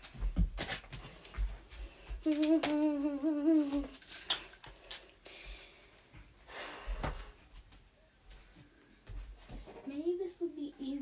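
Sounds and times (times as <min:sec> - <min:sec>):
girl humming: 0:02.2 - 0:04.1.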